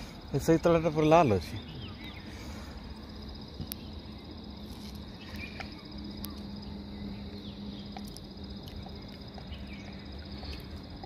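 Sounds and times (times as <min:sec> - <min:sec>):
high-pitched insect trill: 0:00.0 - 0:11.0
low steady hum: 0:00.0 - 0:11.0
bird chirps: 0:01.3 - 0:02.6.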